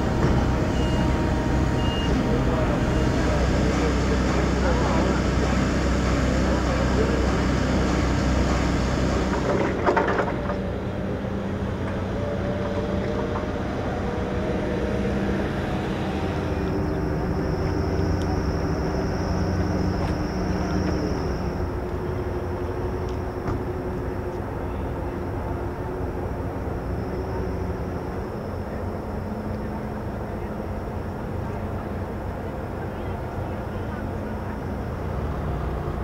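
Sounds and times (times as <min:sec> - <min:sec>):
ship engines droning: 0:00.0 - 0:36.0
thin high whine: 0:13.7 - 0:32.2.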